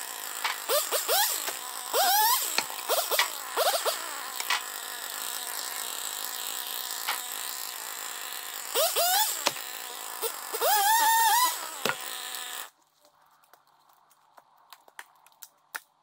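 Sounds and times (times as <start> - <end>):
chainsaw idling and revving: 0.0 - 12.8.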